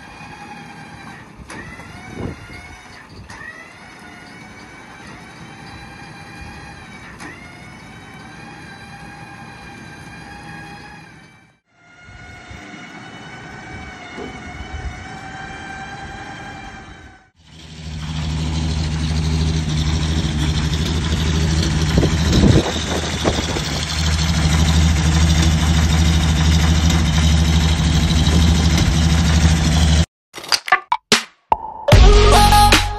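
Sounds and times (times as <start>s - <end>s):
winch whining: 0.0s - 30.0s
petrol engine deep hum: 11.9s - 30.1s.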